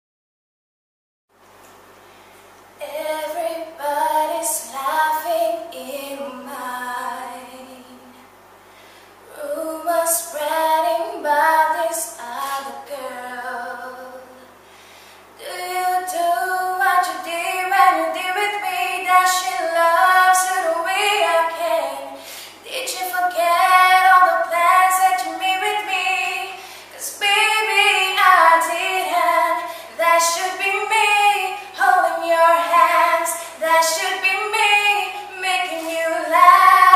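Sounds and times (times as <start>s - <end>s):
woman singing unaccompanied: 2.8s - 8.2s, 9.3s - 14.5s, 15.4s - 36.9s
woman breathing: 8.6s - 9.2s, 14.6s - 15.4s, 22.1s - 22.6s, 26.5s - 27.0s, 29.6s - 30.0s.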